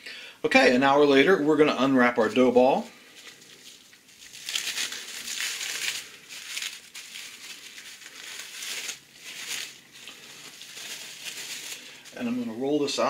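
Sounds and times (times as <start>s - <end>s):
cling wrap crinkling: 3.0s - 12.6s.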